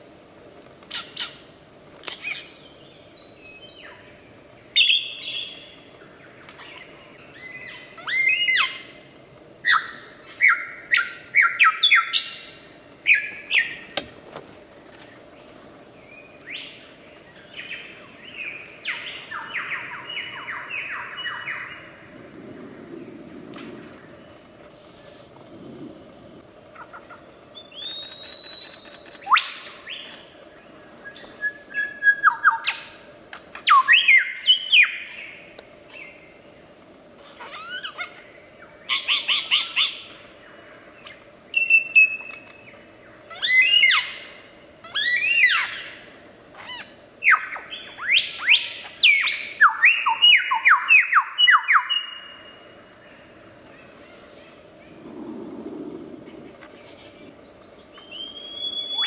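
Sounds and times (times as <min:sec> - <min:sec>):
lyrebird singing: 0:57.3 - 0:59.0.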